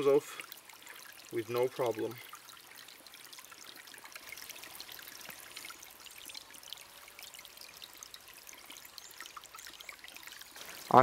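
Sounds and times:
stream trickling over stones: 0.0s - 11.0s.

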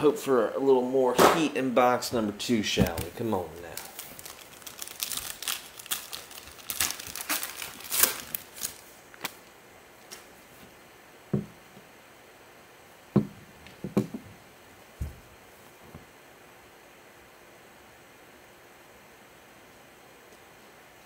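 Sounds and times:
foil wrapper crinkling and tearing: 2.9s - 9.5s.

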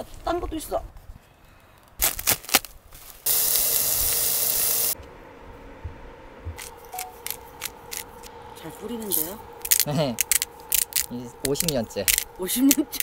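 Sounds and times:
spray can hissing: 3.3s - 5.0s.

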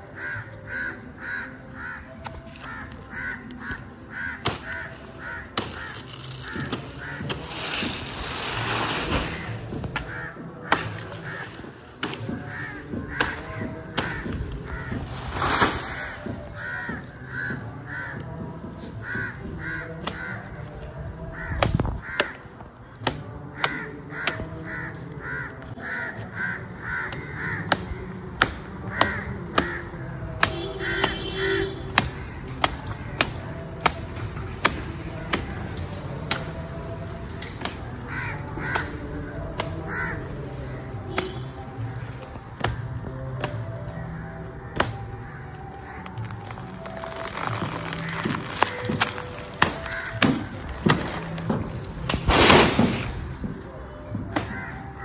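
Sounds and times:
crows cawing: 0.0s - 7.9s, 8.9s - 20.7s, 21.3s - 28.2s, 28.8s - 34.0s, 37.8s - 51.8s, 54.3s - 55.0s
machete chopping: 4.4s - 16.4s, 31.9s - 36.6s, 37.4s - 38.0s, 46.1s - 53.4s.

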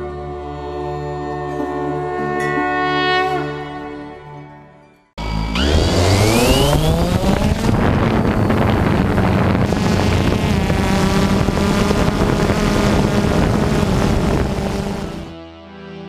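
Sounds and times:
motor spinning up and running: 5.2s - 15.4s.

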